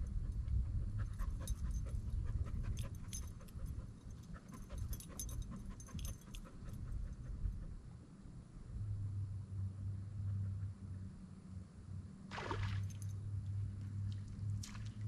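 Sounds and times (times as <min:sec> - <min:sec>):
steady low rumble: 0:00.0 - 0:12.1
dog panting: 0:00.2 - 0:07.8.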